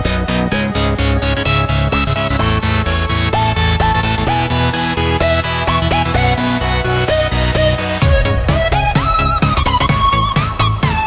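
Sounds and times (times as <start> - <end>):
electronic dance music: 3.2 - 11.0.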